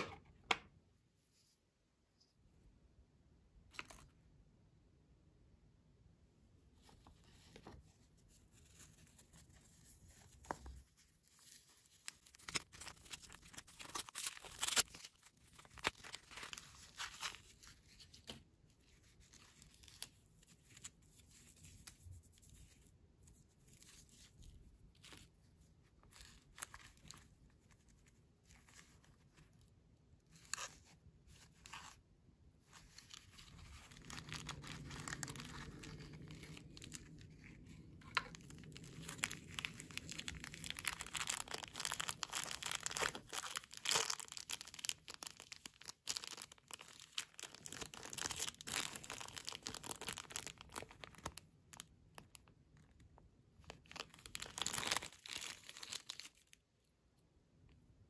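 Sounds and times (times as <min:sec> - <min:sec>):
wrapping crinkling: 0:08.5 - 0:22.8, 0:32.6 - 0:53.0, 0:53.6 - 0:56.6.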